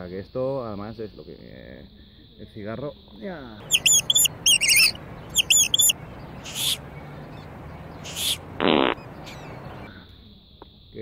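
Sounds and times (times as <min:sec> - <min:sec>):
songbird chirping: 0:03.6 - 0:09.9
low buzzy mouth sound: 0:08.0 - 0:09.9.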